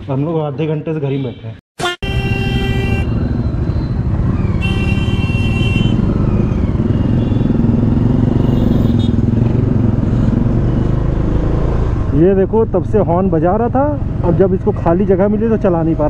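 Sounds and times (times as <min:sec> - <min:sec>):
city traffic: 0:00.0 - 0:16.0
vehicle horn honking: 0:01.1 - 0:03.3, 0:04.6 - 0:06.1, 0:08.4 - 0:09.2
motorcycle engine running: 0:02.6 - 0:15.6.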